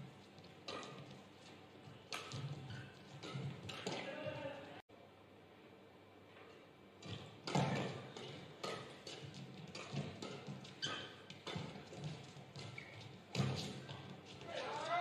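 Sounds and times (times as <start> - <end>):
rackets striking shuttlecock: 0.6 - 1.2, 2.0 - 4.2, 7.0 - 15.0
shoe squeaks on court floor: 2.2 - 4.1, 10.3 - 11.8, 12.6 - 15.0.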